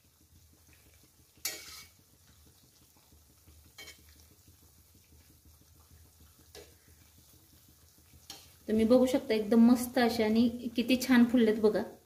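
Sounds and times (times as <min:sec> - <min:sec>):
faint sizzle of deep frying: 0:00.0 - 0:12.0
spoon clinking against pan: 0:01.4 - 0:01.9, 0:03.8 - 0:04.0.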